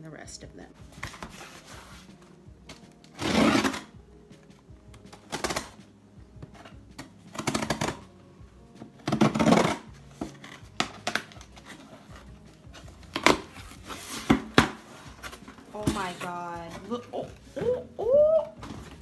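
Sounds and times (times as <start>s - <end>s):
tape tearing and cardboard rustling: 1.0s - 4.0s, 5.1s - 5.8s, 6.5s - 8.1s, 8.9s - 17.2s
knife cutting packing tape: 3.1s - 3.9s, 5.3s - 5.8s, 7.3s - 8.0s, 9.0s - 11.9s, 13.1s - 16.3s.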